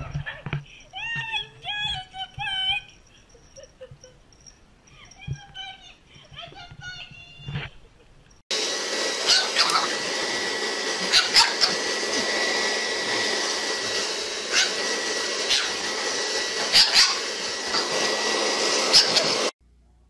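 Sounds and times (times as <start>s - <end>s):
electric appliance whirring: 8.5s - 19.6s.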